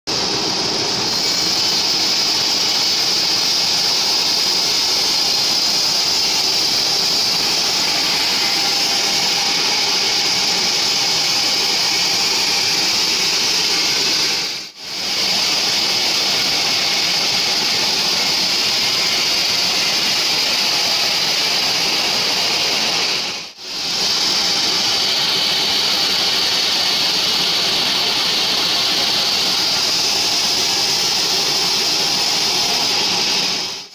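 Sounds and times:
band saw cutting log: 1.0 - 23.1.

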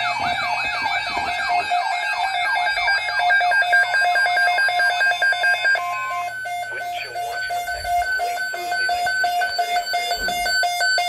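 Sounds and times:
siren-like warble alarm: 0.0 - 11.0
pulsing two-pitch beep: 2.8 - 11.0.

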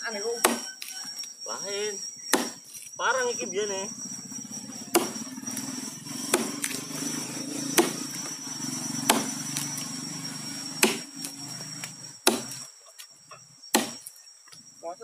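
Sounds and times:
insect drone: 0.0 - 15.0
blade chopping dry wood: 0.4 - 0.9, 2.3 - 2.6, 4.9 - 8.4, 9.0 - 9.9, 10.7 - 12.6, 13.7 - 14.1.

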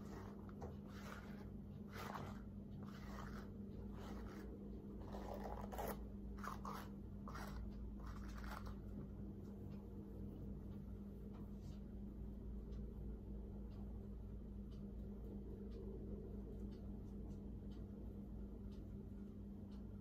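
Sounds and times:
fingers rustling through hair: 0.0 - 9.1
steady low hum: 0.0 - 20.0.

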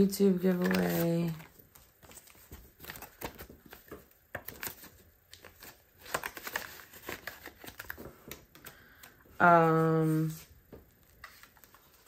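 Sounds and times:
paper rustling and crinkling: 0.3 - 12.0.

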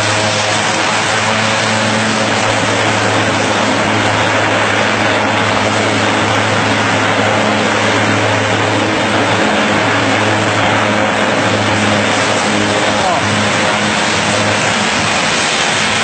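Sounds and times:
propeller plane engines running: 0.0 - 16.0.

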